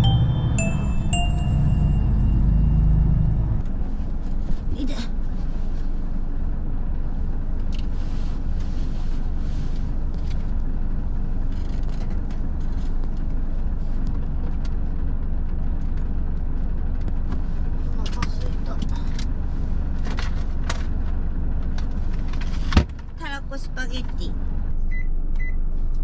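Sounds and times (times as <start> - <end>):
diesel truck engine rumbling: 0.0 - 4.0.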